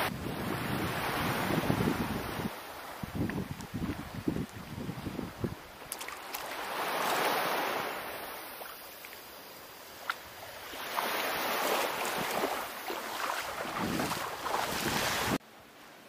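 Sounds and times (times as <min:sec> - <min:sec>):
wind on microphone: 0:00.0 - 0:05.9, 0:10.6 - 0:15.4
small waves washing ashore: 0:00.0 - 0:16.0.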